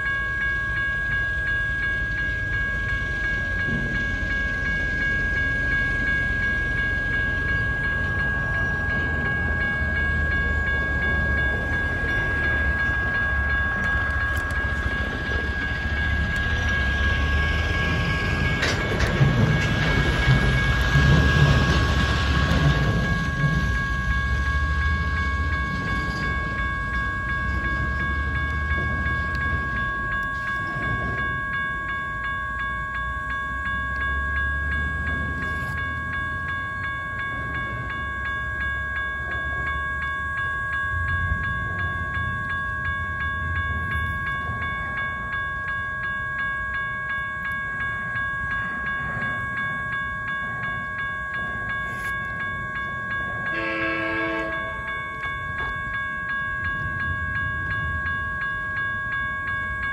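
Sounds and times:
railroad crossing bell ringing: 0.0s - 59.9s.

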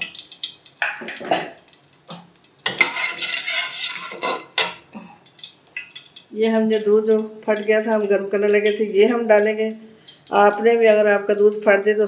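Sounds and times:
metal spoon scraping metal pan: 2.6s - 4.9s.

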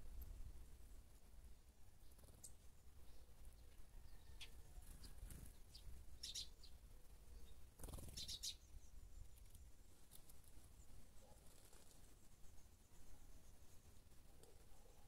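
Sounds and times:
small birds chirping: 0.0s - 15.0s
soft rustle: 9.3s - 15.0s.

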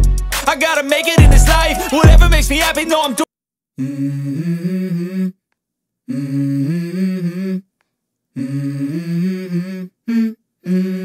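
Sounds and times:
hummed vocal melody: 0.0s - 2.9s, 3.8s - 5.4s, 8.4s - 11.0s.

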